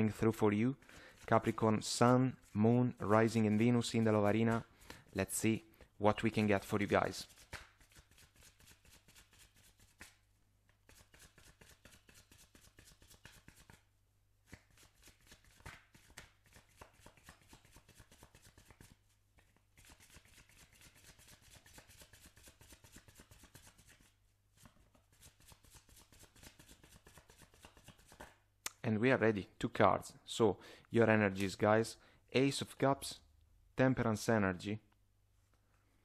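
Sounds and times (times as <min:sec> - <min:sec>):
cards being shuffled: 0:06.3 - 0:28.4.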